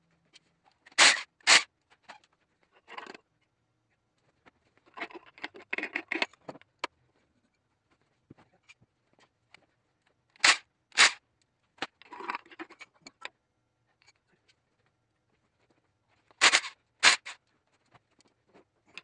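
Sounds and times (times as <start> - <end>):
metal tools clicking and scraping: 16.4 - 17.4.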